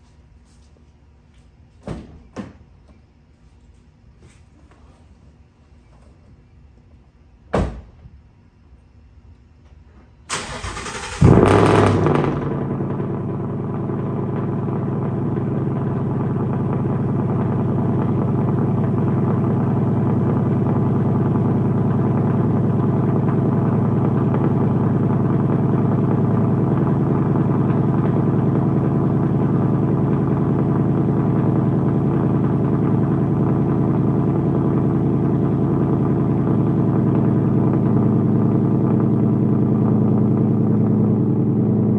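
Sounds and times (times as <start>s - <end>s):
car engine starting and idling: 10.3s - 41.9s.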